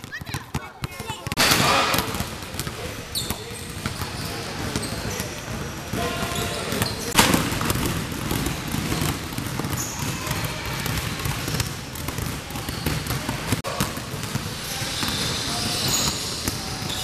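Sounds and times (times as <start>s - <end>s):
basketballs bouncing on wooden floor: 0.0s - 17.0s.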